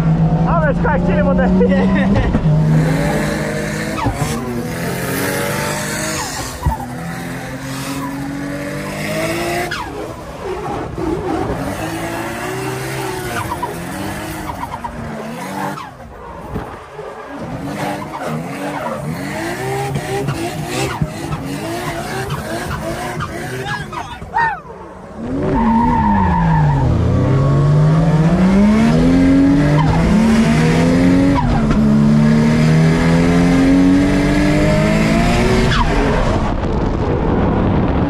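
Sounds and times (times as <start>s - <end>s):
car engine revving: 0.0s - 38.0s
tyres squealing and skidding: 2.5s - 27.2s.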